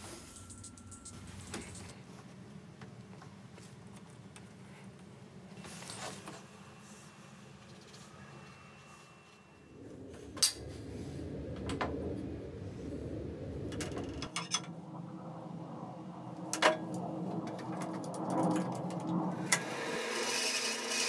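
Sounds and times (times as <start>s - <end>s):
steady low hum: 0.0s - 19.6s.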